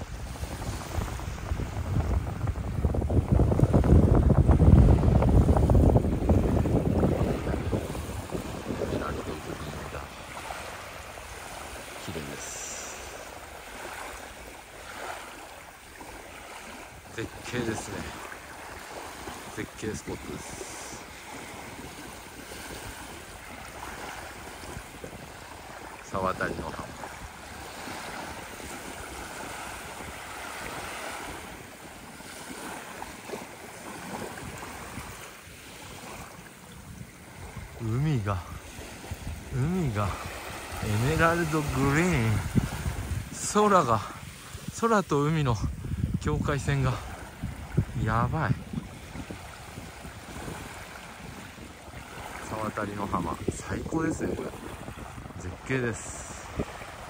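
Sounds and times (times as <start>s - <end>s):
small waves lapping on sand: 0.0s - 57.0s
wind rumbling on microphone: 0.0s - 57.0s.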